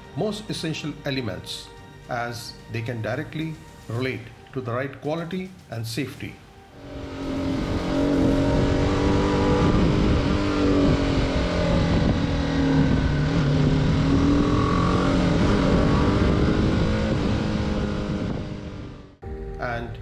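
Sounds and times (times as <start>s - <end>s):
motorcycle engine revving: 6.8s - 19.2s
wind and road rush: 6.8s - 19.2s.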